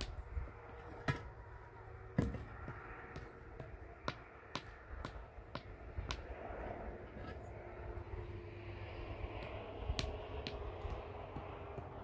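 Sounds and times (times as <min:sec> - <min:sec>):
sharp taps and knocks: 0:02.2 - 0:06.3, 0:09.4 - 0:12.0.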